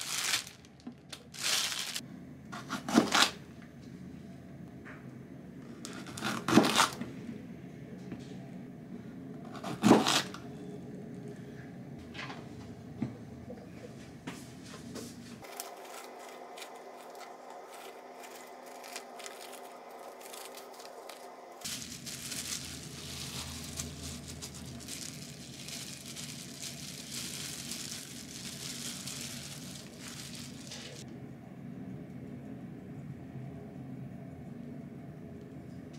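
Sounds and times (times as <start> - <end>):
plastic food bag crinkling: 0.0 - 2.0, 15.4 - 31.0
plastic gloves crinkling: 0.0 - 2.0, 15.4 - 31.0.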